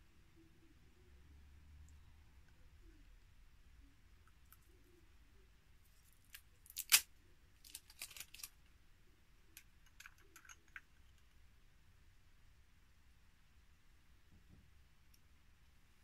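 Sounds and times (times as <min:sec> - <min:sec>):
plastic pot clicking and crackling: 0:06.3 - 0:08.6, 0:09.6 - 0:11.2.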